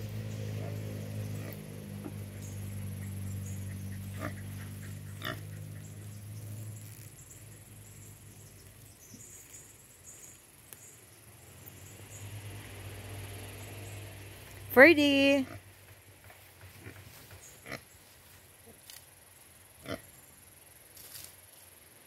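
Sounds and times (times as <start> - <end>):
boar grunting: 3.7 - 6.0.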